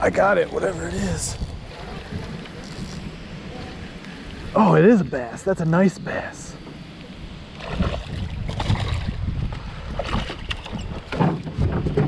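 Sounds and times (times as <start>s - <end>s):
water splashing: 7.4s - 9.3s, 9.9s - 11.6s
fish splashing out of water: 7.6s - 9.2s.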